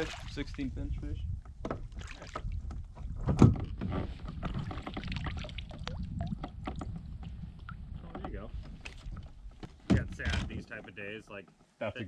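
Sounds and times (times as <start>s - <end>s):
knocks and clatter on a kayak: 1.3s - 11.8s
loud thump: 9.8s - 10.6s.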